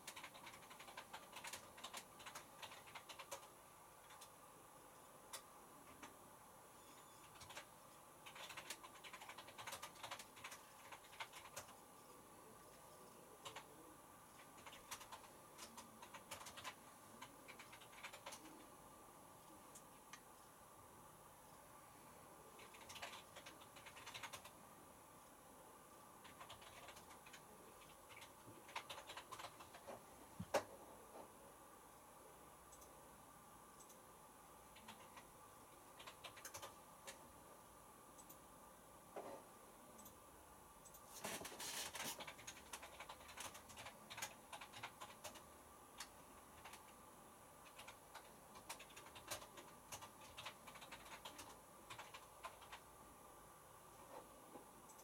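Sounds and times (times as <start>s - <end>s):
washing machine ticks and clicks: 0.0s - 4.3s, 7.3s - 11.7s, 26.2s - 29.9s, 32.7s - 33.0s.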